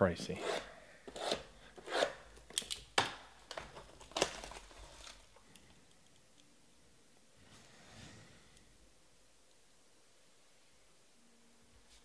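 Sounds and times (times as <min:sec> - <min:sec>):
plastic shrink wrap crinkling: 0:03.5 - 0:05.4.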